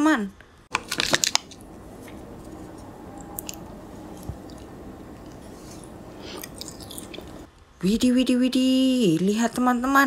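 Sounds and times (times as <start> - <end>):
wet squishes of chewing gummy: 0.7 - 7.5.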